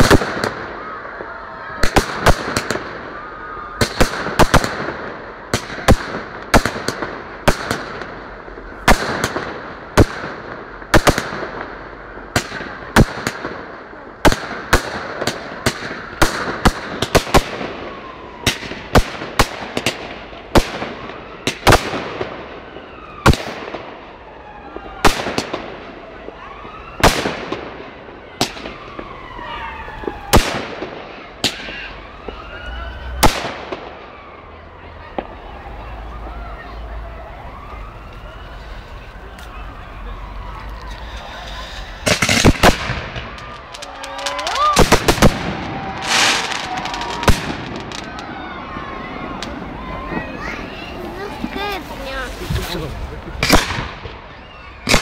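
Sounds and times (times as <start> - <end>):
firework crackle: 0.0 - 34.2, 37.6 - 55.0
firework whistles: 40.0 - 52.6
firework shells bursting: 41.0 - 48.3.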